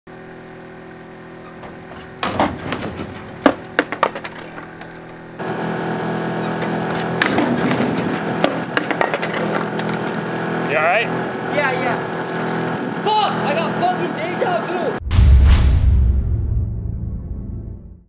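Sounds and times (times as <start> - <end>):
mechanical hum: 0.1 - 15.0
skateboard clattering on pavement: 1.8 - 5.0, 7.0 - 10.1.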